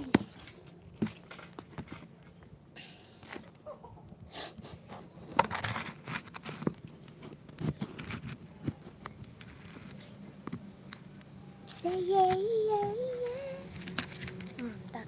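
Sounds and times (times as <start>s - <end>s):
phone handling clicks and rustles: 5.3s - 14.7s.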